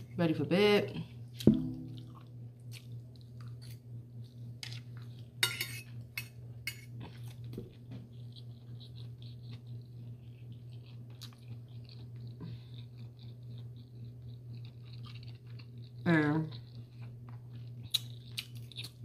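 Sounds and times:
steady low hum: 0:00.0 - 0:19.0
cutlery clinking on a plate: 0:05.4 - 0:06.9.

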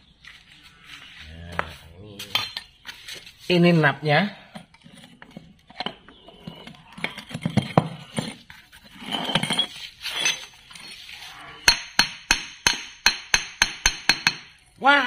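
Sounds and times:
metal clinking and scraping: 0:00.4 - 0:03.5, 0:04.5 - 0:11.8.

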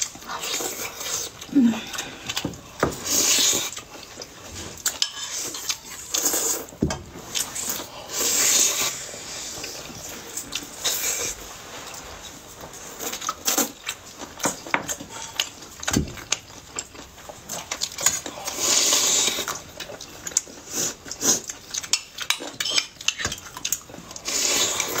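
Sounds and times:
chewing and slurping: 0:00.0 - 0:25.0
utensils clicking against bowls: 0:21.7 - 0:25.0.

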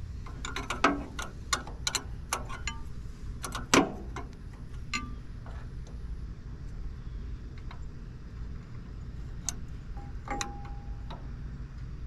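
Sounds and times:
wrench clicking on metal bolts: 0:00.2 - 0:05.6, 0:09.4 - 0:11.3.

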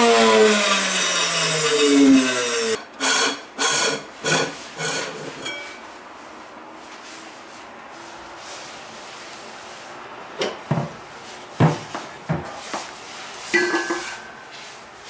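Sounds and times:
grinder motor winding down: 0:00.0 - 0:02.8
metal lid scraping and clunking: 0:13.6 - 0:14.4.

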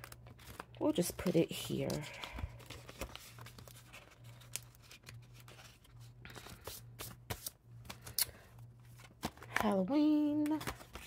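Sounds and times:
paper rustling: 0:00.0 - 0:08.2, 0:10.4 - 0:11.0.

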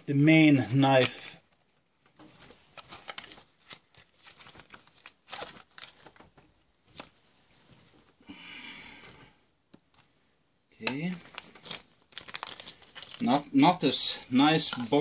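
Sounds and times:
plastic packaging crinkling: 0:02.3 - 0:06.3, 0:10.8 - 0:15.0.

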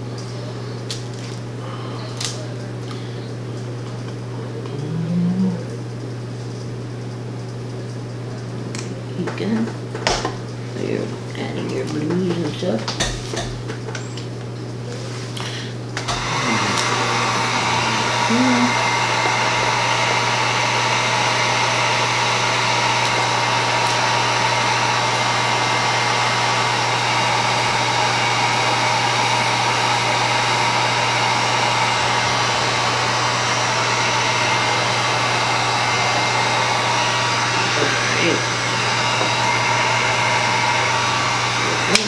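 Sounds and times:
heat gun running: 0:15.4 - 0:42.0.

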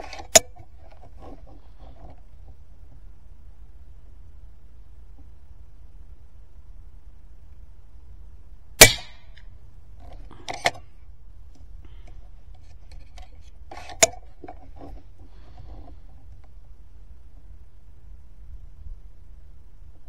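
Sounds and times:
air rifle cracks: 0:08.8 - 0:09.5.

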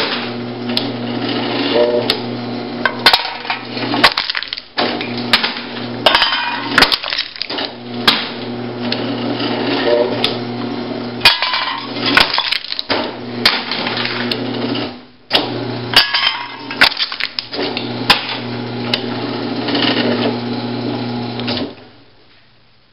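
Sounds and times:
motor humming: 0:00.2 - 0:14.8
aluminum can crunching: 0:04.0 - 0:04.8, 0:06.7 - 0:07.8, 0:11.7 - 0:12.9, 0:16.7 - 0:17.5.

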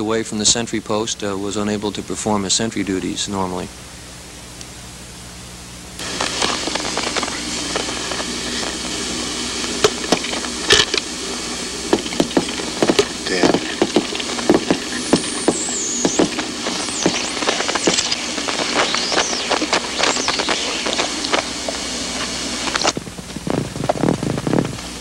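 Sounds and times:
old film hiss: 0:06.0 - 0:23.0
high sliding whistles: 0:13.3 - 0:22.9.

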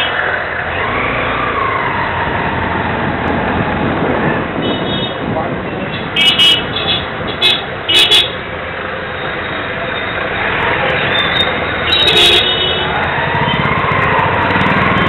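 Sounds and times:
motorcycle and scooter engines: 0:00.0 - 0:15.0
high horn toots: 0:06.0 - 0:08.4, 0:11.8 - 0:12.9.

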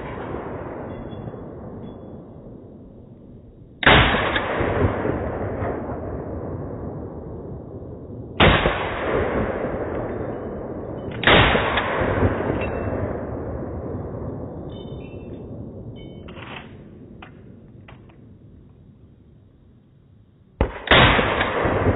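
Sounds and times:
rifle shots with echo: 0:00.0 - 0:03.1, 0:03.8 - 0:07.7, 0:08.3 - 0:14.4, 0:20.6 - 0:21.9.

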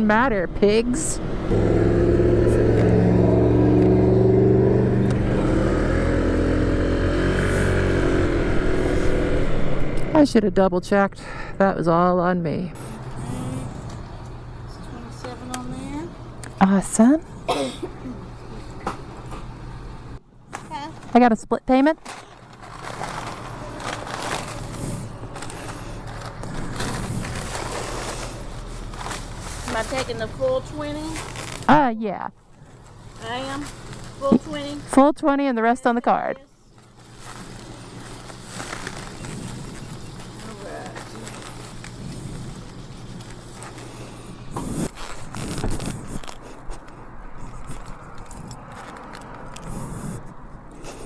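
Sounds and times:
steady low hum: 0:00.0 - 0:48.8
plastic bag crinkling: 0:22.0 - 0:31.8, 0:36.8 - 0:49.5
handling clicks and scrapes: 0:36.8 - 0:51.0.

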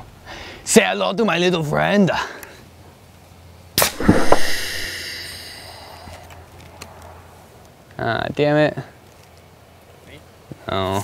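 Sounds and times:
air cannon bang: 0:03.8 - 0:05.3
air hissing out: 0:03.8 - 0:06.3.

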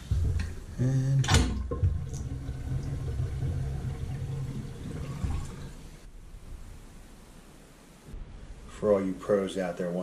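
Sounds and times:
water draining through sink pipe: 0:00.0 - 0:06.1.

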